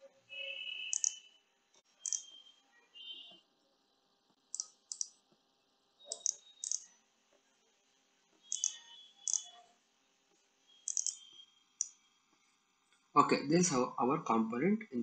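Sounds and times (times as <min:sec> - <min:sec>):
computer mouse clicking: 0:00.9 - 0:01.2, 0:02.0 - 0:02.3, 0:04.5 - 0:05.2, 0:06.1 - 0:06.8, 0:08.5 - 0:09.5, 0:10.9 - 0:11.2.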